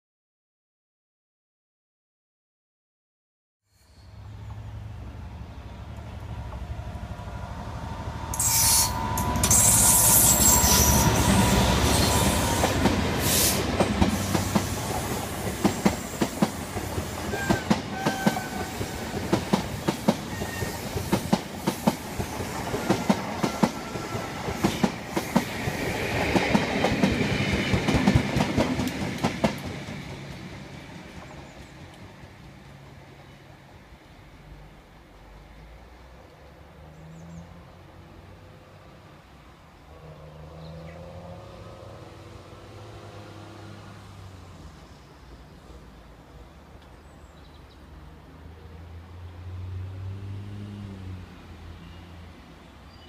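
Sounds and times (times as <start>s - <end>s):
diesel locomotive passing: 3.9s - 47.0s, 47.8s - 53.0s
train wheels clickety-clack: 8.3s - 32.1s.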